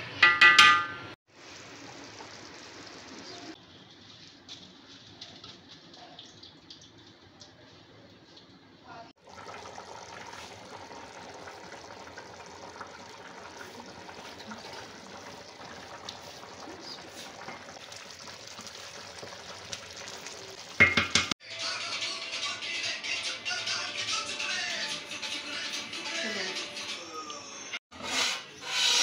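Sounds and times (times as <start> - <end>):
pot boiling and bubbling: 0.2 - 21.4
background music: 21.4 - 27.8.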